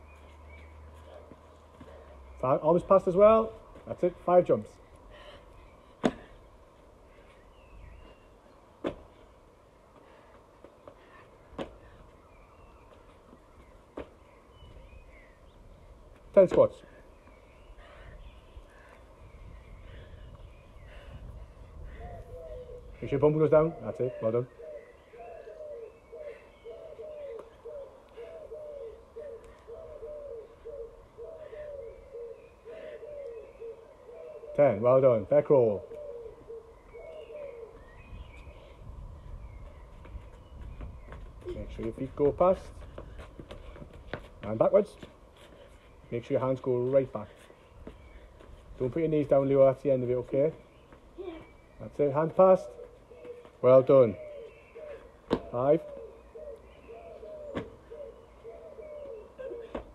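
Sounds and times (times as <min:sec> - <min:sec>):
small birds chirping: 0:00.0 - 0:59.9
trainers landing on paving: 0:06.0 - 0:06.4, 0:08.8 - 0:09.2, 0:55.2 - 0:55.5
pigeons cooing: 0:19.8 - 0:39.6, 0:50.6 - 0:59.9.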